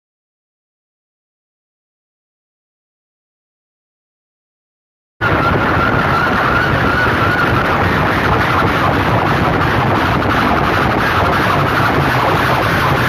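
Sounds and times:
distorted loudspeaker roar: 0:05.2 - 0:13.0.

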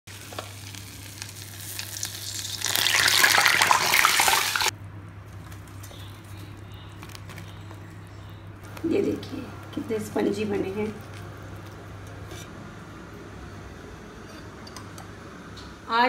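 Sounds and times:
batter deep-frying in oil: 0:00.1 - 0:15.1
low steady hum: 0:04.7 - 0:16.0.

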